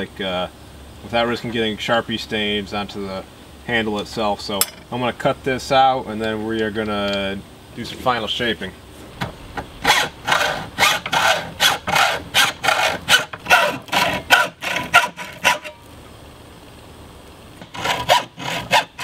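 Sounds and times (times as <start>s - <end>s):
hacksaw cutting metal sheet: 9.8s - 15.8s, 17.6s - 19.0s.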